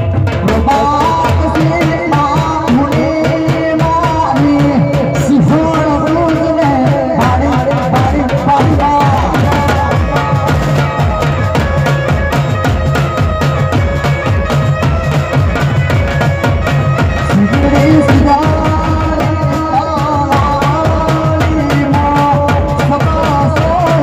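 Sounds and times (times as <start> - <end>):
drums playing fast rhythm: 0.0 - 24.0
folk melody: 8.2 - 24.0.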